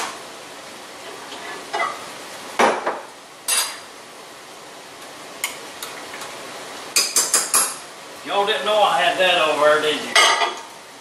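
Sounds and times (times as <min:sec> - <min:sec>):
dishes and utensils clinking: 0:03.5 - 0:03.8, 0:10.1 - 0:10.7.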